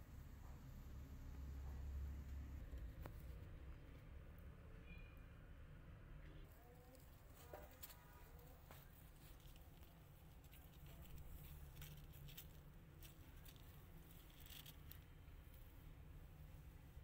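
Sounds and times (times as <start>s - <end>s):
low steady hum: 0.0s - 17.0s
kitten claws scratching plastic: 6.9s - 15.5s.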